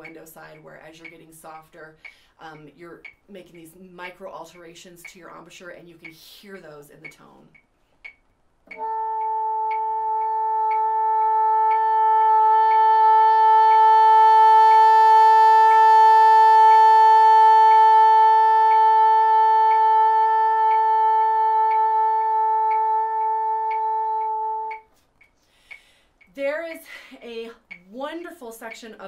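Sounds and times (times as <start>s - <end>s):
metronome clicking: 0.0s - 29.0s
bassoon long note: 8.7s - 24.9s.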